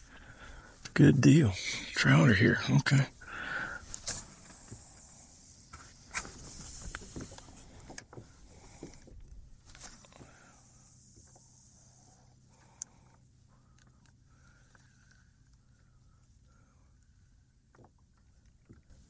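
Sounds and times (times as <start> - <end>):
faint hiss: 0.0 - 9.0, 9.6 - 13.1.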